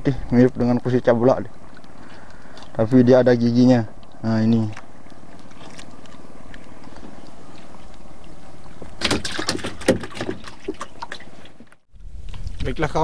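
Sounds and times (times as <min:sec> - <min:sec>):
sea water washing around boat: 0:04.2 - 0:11.8.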